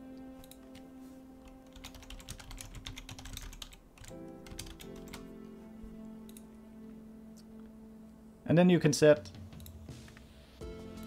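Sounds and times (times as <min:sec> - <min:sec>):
typing on keyboard: 0:01.4 - 0:05.3.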